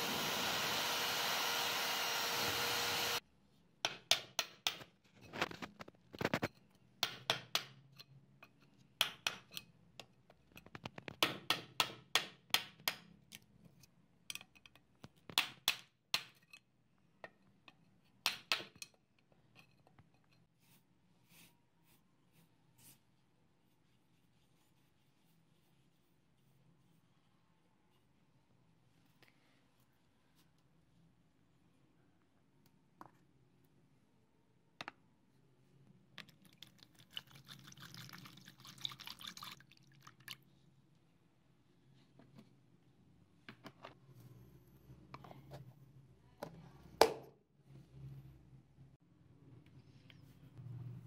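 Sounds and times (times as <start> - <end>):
liquid pouring and splashing into tub: 36.2 - 40.4.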